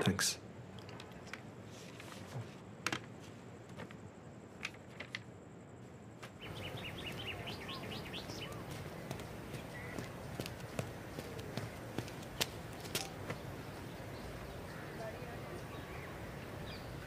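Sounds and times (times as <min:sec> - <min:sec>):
outdoor ambience: 0:00.0 - 0:17.0
bird chirping: 0:06.4 - 0:17.0.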